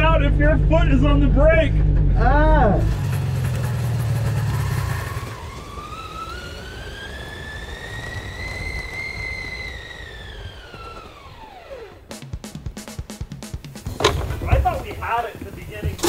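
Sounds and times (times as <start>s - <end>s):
snowcat engine whining: 0.0s - 12.2s
steady hiss: 11.7s - 16.0s.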